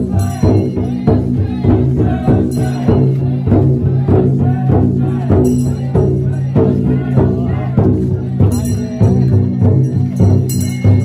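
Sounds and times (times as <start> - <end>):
large taiko drum beating: 0.0 - 11.0.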